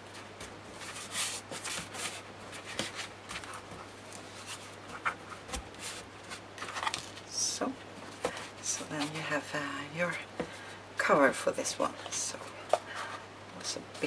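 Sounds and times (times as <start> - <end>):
card scraping and rustling: 0.4 - 7.3.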